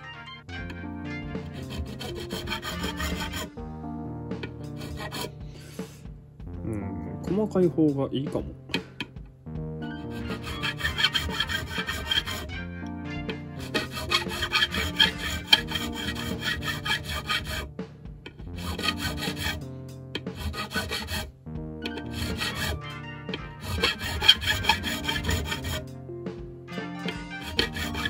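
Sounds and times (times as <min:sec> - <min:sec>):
background music: 0:00.0 - 0:28.0
file rasping on metal fret: 0:01.4 - 0:03.6, 0:04.4 - 0:05.4, 0:09.8 - 0:12.6, 0:13.2 - 0:17.7, 0:18.3 - 0:25.9, 0:27.0 - 0:28.0.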